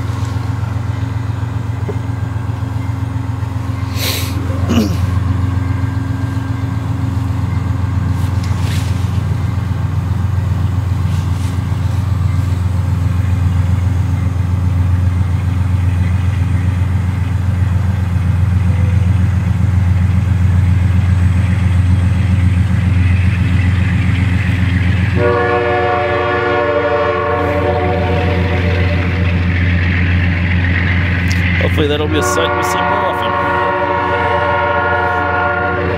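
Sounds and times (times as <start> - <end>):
train cars rolling rumble: 0.0 - 35.9
locomotive air horn chord: 25.1 - 29.4, 31.6 - 35.9.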